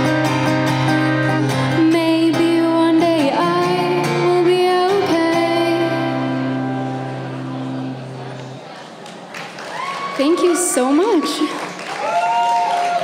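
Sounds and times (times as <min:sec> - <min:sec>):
strummed acoustic guitar: 0:00.0 - 0:08.7
woman singing: 0:01.5 - 0:06.7.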